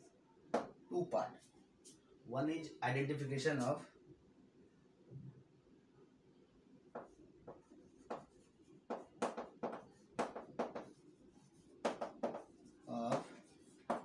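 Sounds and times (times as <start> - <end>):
chalk tapping and scraping on chalkboard: 0.0 - 2.0, 6.9 - 14.0.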